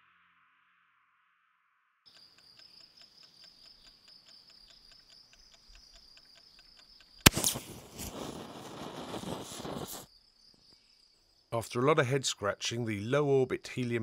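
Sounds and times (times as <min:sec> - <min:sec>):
igniter fizzing and hissing: 0:07.3 - 0:10.1
igniter loud crack: 0:07.3 - 0:10.1.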